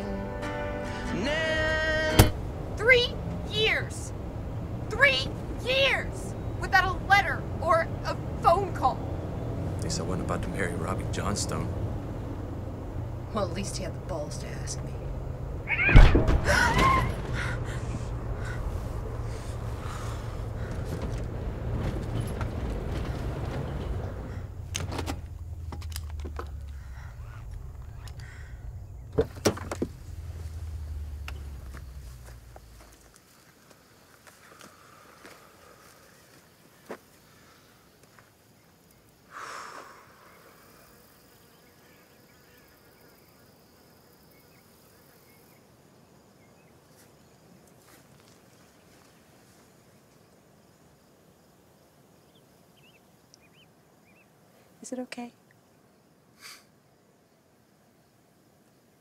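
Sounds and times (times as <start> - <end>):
insects buzzing and chirping: 0.0 - 59.0
tyre and engine rumble in car: 1.2 - 33.2
rush of noise: 15.6 - 33.0.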